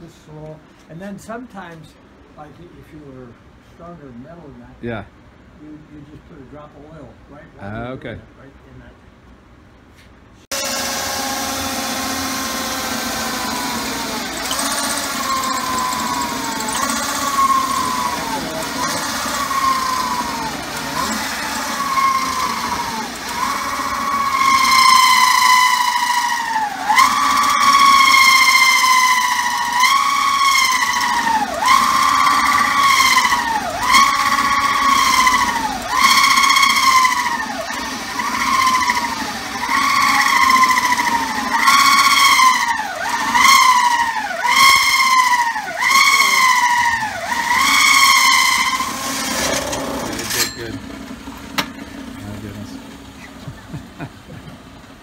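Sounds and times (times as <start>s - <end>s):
cymbal squealing under hole saw: 10.5s - 54.1s.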